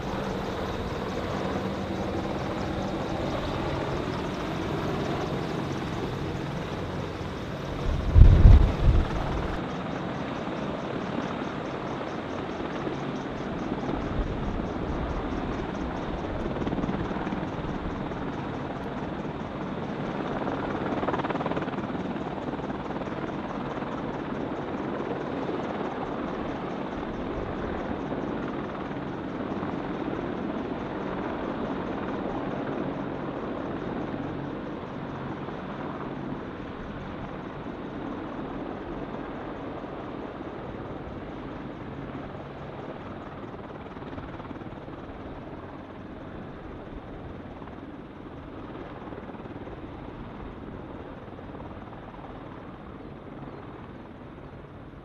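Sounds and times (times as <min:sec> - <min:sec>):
helicopter rotors droning: 0:00.0 - 0:55.0
low-pitched rumble: 0:07.9 - 0:09.6.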